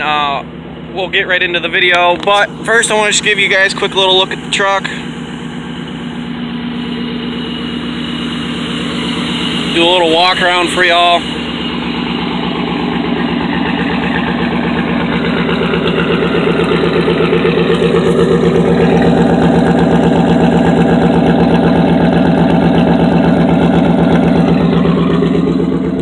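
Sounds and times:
pickup truck engine idling: 0:00.0 - 0:26.0.

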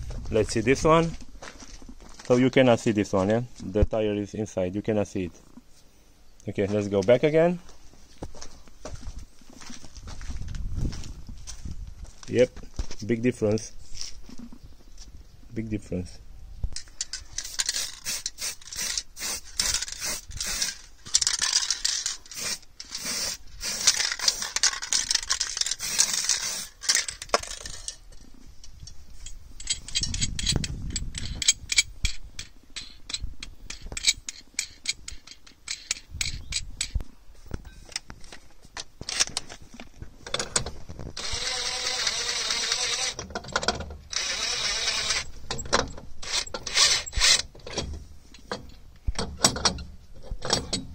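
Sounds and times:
metallic clicking of tools and nuts: 0:16.7 - 0:39.5, 0:40.3 - 0:50.9
cordless drill running: 0:41.2 - 0:43.2, 0:44.1 - 0:45.3.

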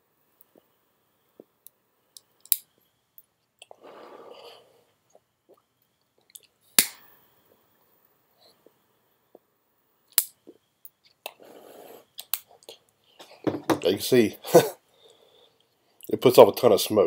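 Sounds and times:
lighter clicks: 0:02.2 - 0:02.7
breathy exhale: 0:03.8 - 0:04.9, 0:14.8 - 0:15.6.

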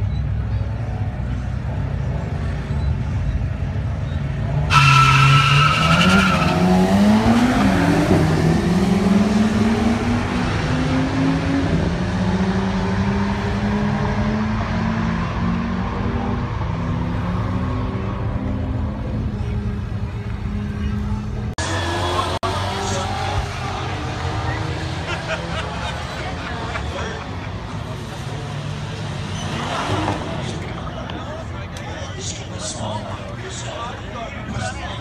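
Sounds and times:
tyre squeal: 0:04.0 - 0:06.8
car engine revving: 0:04.5 - 0:20.8.

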